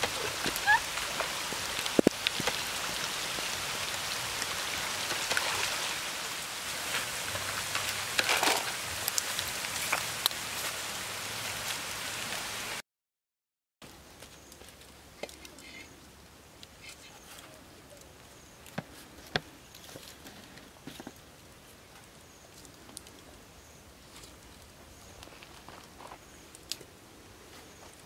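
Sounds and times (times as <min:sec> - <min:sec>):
sharp clicks and splashes: 0:00.0 - 0:03.5
stream running over stones: 0:00.0 - 0:12.8.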